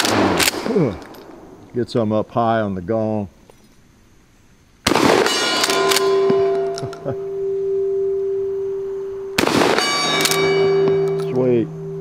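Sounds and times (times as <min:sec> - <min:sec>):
shotgun firing: 0:00.0 - 0:01.4, 0:04.9 - 0:06.7, 0:09.4 - 0:11.1
steel gong ringing: 0:05.4 - 0:12.0.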